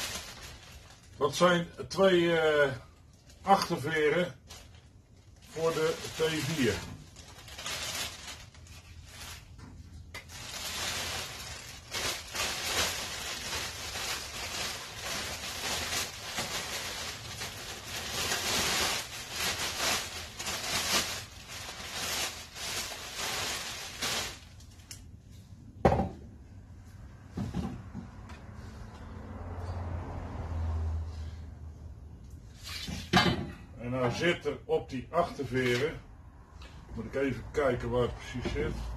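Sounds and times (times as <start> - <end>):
plastic bag crinkling: 0.0 - 1.4, 3.0 - 25.0.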